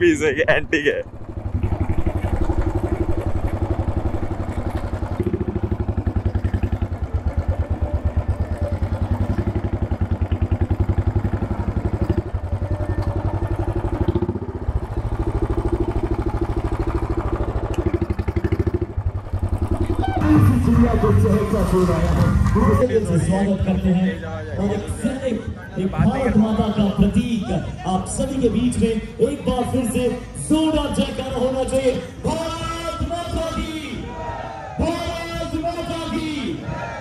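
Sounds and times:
motorcycle engine idling: 1.0s - 25.2s.

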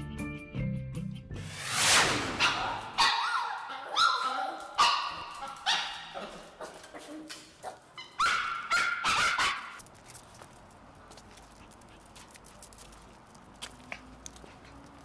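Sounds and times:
small dogs yapping: 2.4s - 9.8s.

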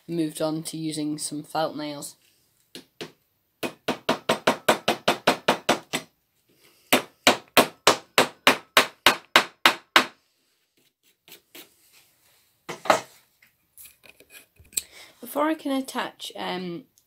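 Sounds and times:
hammer tapping nails into wood: 2.8s - 6.1s, 7.0s - 10.2s.

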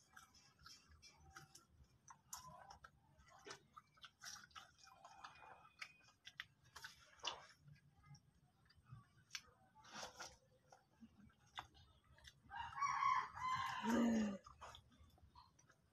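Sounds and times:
chewing crunchy snack: 0.0s - 15.9s.

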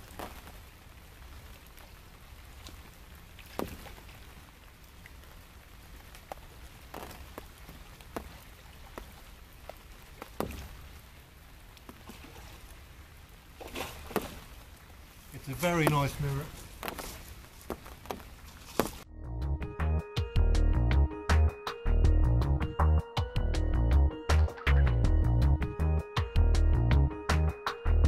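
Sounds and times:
fish splashing at water surface: 13.6s - 14.6s.

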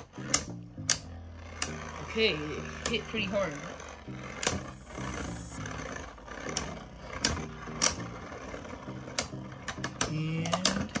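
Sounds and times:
tops clacking together: 0.0s - 1.8s, 9.1s - 11.0s
spinning tops whirring: 0.0s - 11.0s.

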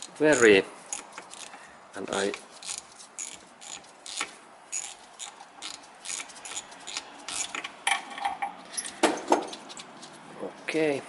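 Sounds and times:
socket ratchet clicking: 0.0s - 1.6s, 2.2s - 7.8s.

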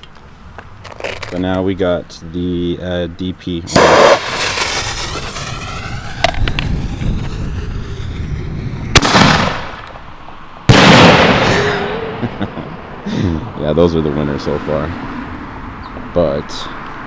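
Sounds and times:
lift charge crack: 3.7s - 10.1s.

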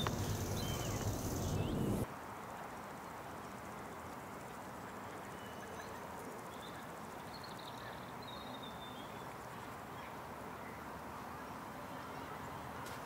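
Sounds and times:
faint high bird chirps: 0.0s - 2.0s
outdoor ambient noise: 0.0s - 13.0s.

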